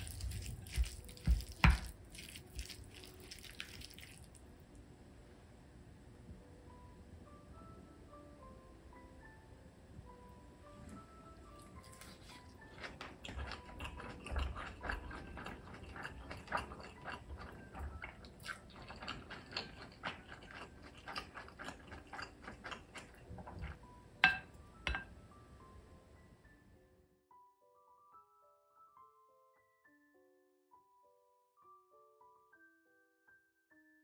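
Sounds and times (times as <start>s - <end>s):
wooden spoon knocking on glass bowl: 0.7s - 1.9s, 24.2s - 25.1s.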